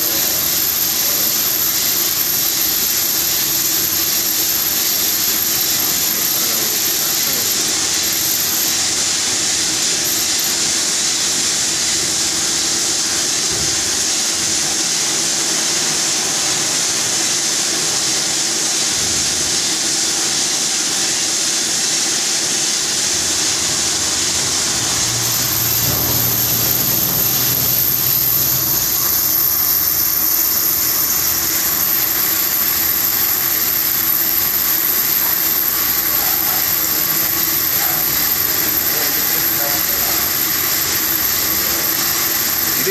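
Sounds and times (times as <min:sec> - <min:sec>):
machine hum: 0:00.0 - 0:10.9, 0:22.9 - 0:42.9
machining metal noise: 0:00.0 - 0:13.5, 0:21.7 - 0:42.9
coolant spray hiss: 0:00.0 - 0:42.9
high thin whine: 0:00.0 - 0:42.9.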